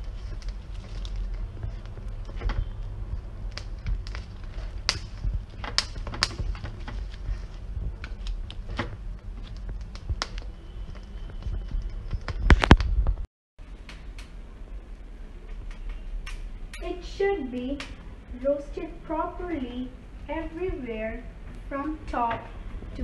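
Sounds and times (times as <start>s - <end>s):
corn kernels crackling and popping: 0.0s - 13.0s.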